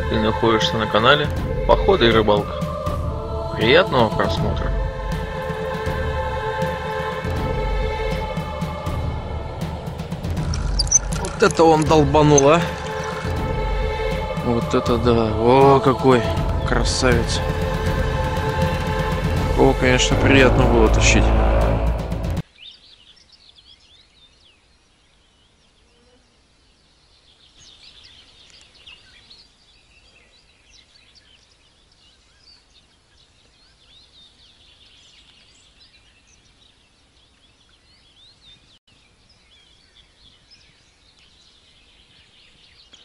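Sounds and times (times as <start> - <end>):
small birds chirping and singing: 0.0 - 4.8, 9.6 - 19.8, 22.4 - 43.0
faint low rumble: 18.7 - 22.4.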